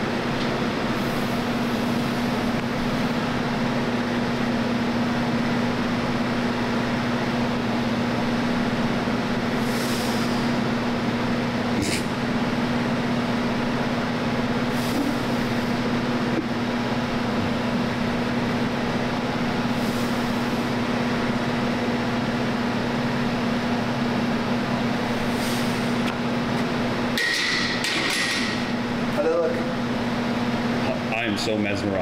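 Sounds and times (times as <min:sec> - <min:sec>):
ventilation hum: 0:00.0 - 0:32.0.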